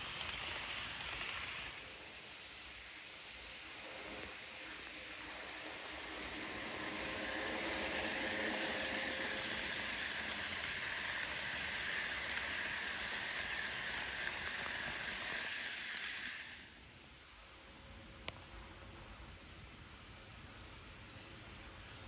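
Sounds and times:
faint clicks of train wheels: 0:00.0 - 0:16.8, 0:18.1 - 0:19.3, 0:20.5 - 0:22.0
model train rolling on track: 0:00.0 - 0:22.0.

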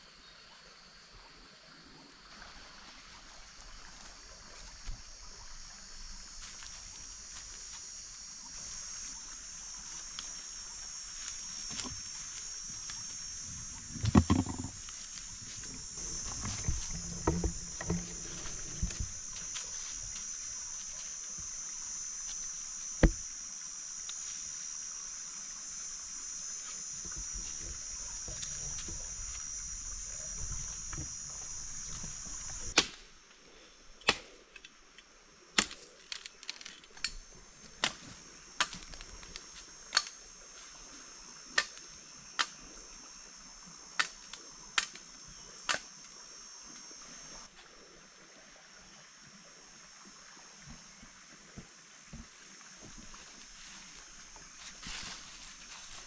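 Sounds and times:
forest insects buzzing: 0:00.0 - 0:56.0
branches rustling: 0:02.5 - 0:33.3, 0:52.8 - 0:56.0
machete chopping wood: 0:32.7 - 0:33.1, 0:34.0 - 0:34.4, 0:35.6 - 0:35.9.

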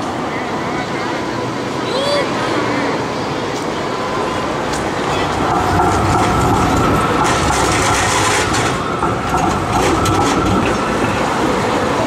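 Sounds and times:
tram high whine: 0:00.0 - 0:12.0
tram rumbling past: 0:00.0 - 0:12.0
wheels clicking over rail junction: 0:04.6 - 0:12.0.

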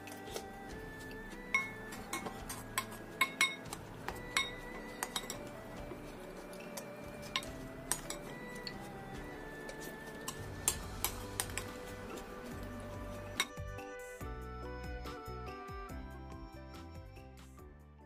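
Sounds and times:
spoon clinking against ceramic bowl: 0:01.5 - 0:05.5, 0:06.5 - 0:08.9, 0:13.3 - 0:13.6.

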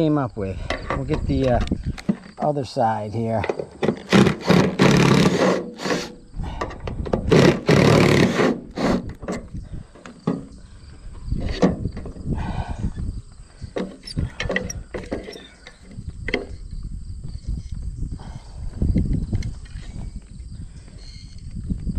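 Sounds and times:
microphone handling rustles and bumps: 0:00.5 - 0:02.4, 0:03.2 - 0:21.9.

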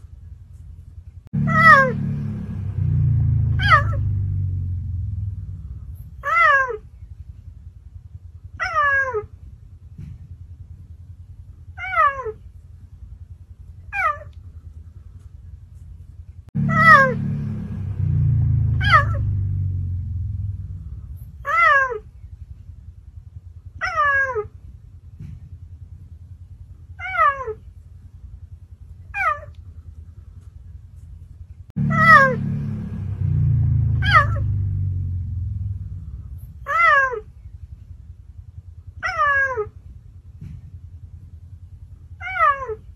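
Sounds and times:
low rumble: 0:00.0 - 0:42.9
cheetah meow calls: 0:03.6 - 0:04.1, 0:06.2 - 0:06.9, 0:08.6 - 0:09.3, 0:11.8 - 0:12.4, 0:13.9 - 0:14.4, 0:18.8 - 0:19.2, 0:21.4 - 0:22.1, 0:23.8 - 0:24.6, 0:27.0 - 0:27.6, 0:29.1 - 0:29.6, 0:34.0 - 0:34.4, 0:36.6 - 0:37.3, 0:39.0 - 0:39.8, 0:42.2 - 0:42.9.

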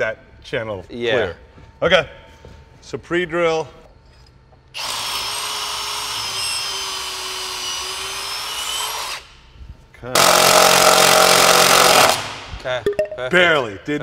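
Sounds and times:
power drill drilling into wood: 0:04.8 - 0:09.2, 0:10.2 - 0:12.4.

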